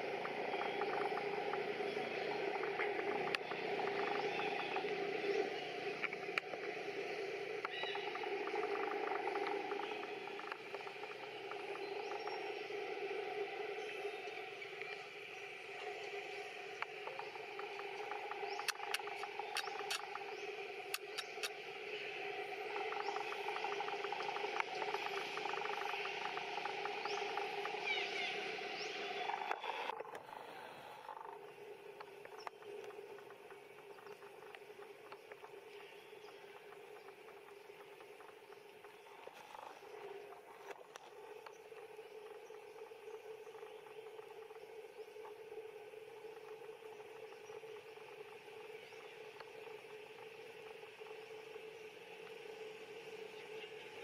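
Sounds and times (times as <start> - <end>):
faint clicks: 0.0 - 13.1, 16.7 - 54.0
insect drone with ticking: 0.0 - 54.0
outdoor background hum: 0.0 - 54.0
sharp click: 20.9 - 21.6.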